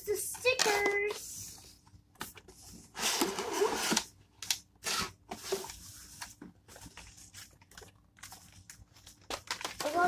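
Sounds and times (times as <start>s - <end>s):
paper and cardboard rustling: 4.9s - 10.0s.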